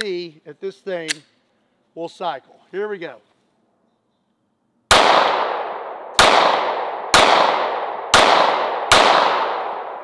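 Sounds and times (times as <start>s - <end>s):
pistol shots echoing: 4.9s - 10.0s.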